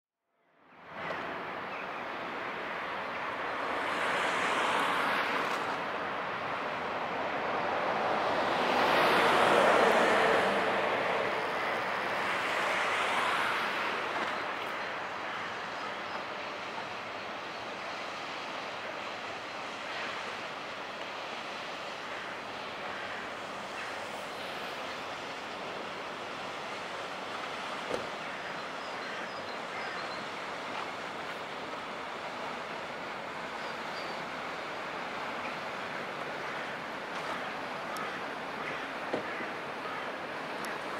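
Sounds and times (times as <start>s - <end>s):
cargo ship rushing noise: 1.0s - 40.9s
ship passing rushing noise: 3.3s - 14.6s.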